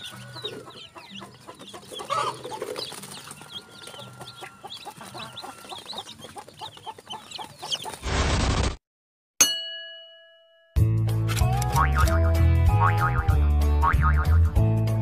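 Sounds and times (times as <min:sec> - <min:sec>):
chicks peeping: 0:00.0 - 0:08.0.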